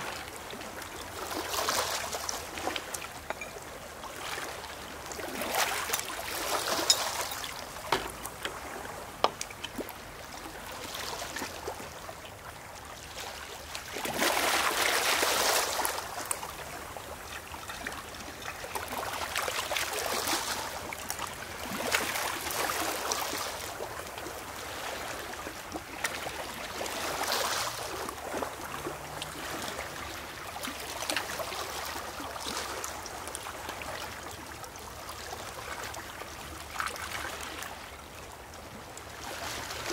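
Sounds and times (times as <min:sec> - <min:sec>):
waves washing over pebbles: 0:00.0 - 0:11.9, 0:13.2 - 0:17.0, 0:18.0 - 0:33.6
water trickling into bottle: 0:02.8 - 0:03.8, 0:05.9 - 0:10.0.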